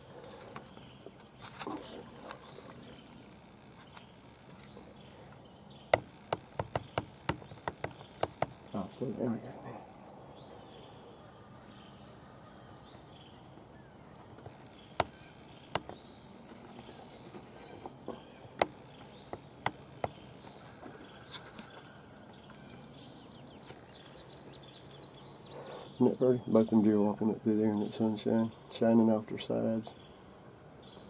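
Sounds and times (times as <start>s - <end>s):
faint outdoor ambience: 0.0s - 31.0s
sharp short clicks and taps: 5.9s - 8.7s, 15.7s - 16.0s.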